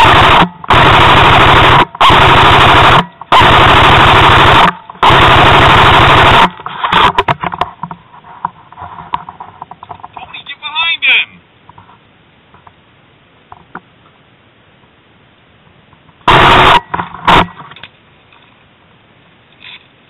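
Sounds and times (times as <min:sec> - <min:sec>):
airsoft gun full-auto bursts: 0:00.0 - 0:07.1, 0:16.3 - 0:17.5.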